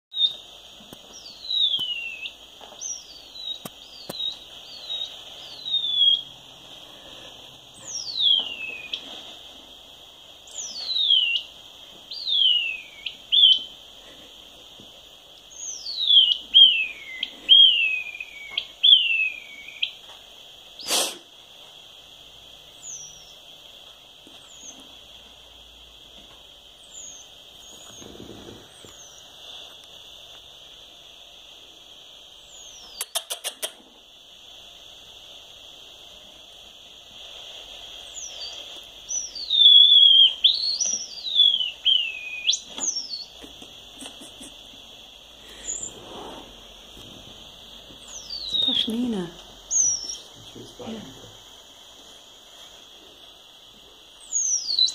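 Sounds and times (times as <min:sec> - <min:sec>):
bat detector hiss: 0:00.1 - 0:54.9
short falling whistles: 0:12.1 - 0:13.7, 0:39.2 - 0:43.2
sharp click: 0:33.0 - 0:33.8.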